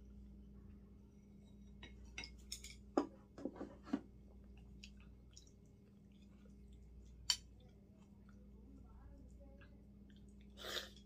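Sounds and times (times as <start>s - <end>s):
wet chewing and smacking: 4.4s - 8.6s, 9.2s - 11.0s.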